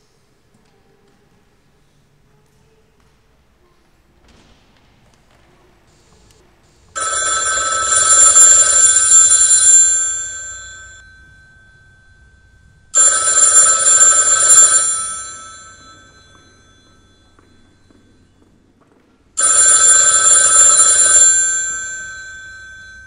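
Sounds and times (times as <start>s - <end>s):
telephone bell ringing: 7.0s - 18.6s, 19.4s - 23.0s.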